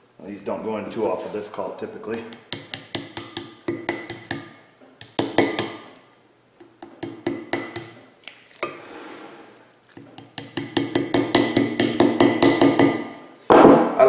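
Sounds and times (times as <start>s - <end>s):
hammer tapping metal punch: 2.3s - 6.0s, 6.6s - 8.0s, 10.2s - 13.2s.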